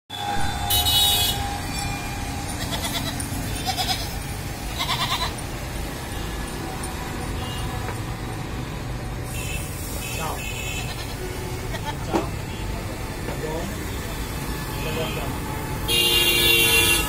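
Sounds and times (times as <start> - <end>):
road traffic rumble: 0.1 - 17.0
goats bleating: 2.6 - 5.4.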